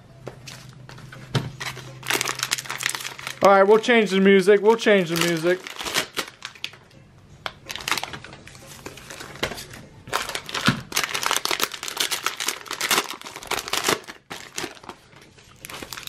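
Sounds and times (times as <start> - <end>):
plastic wrapping crinkling: 1.6 - 3.8, 4.6 - 6.8, 7.6 - 16.0.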